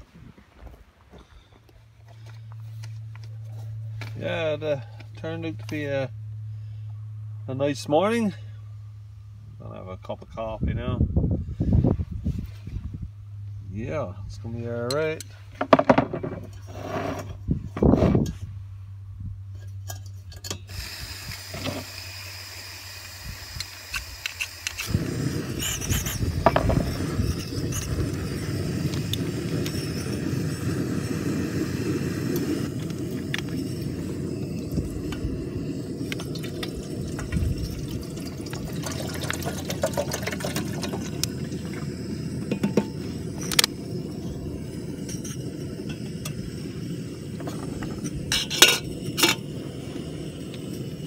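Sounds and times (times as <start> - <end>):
gas burner rushing: 20.4 - 51.0
water pouring into a kettle: 35.9 - 42.0.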